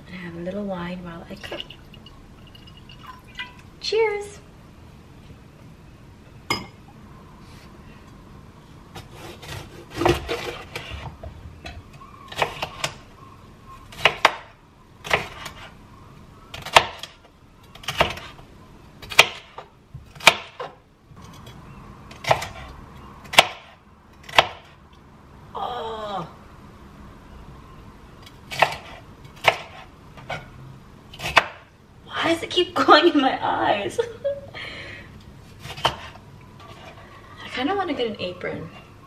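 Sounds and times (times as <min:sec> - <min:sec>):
knife slicing pepper on board: 0:35.6 - 0:36.2.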